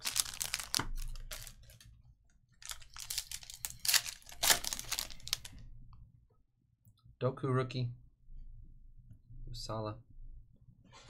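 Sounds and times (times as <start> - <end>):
foil wrapper crinkling and tearing: 0.0 - 1.9, 2.6 - 5.6.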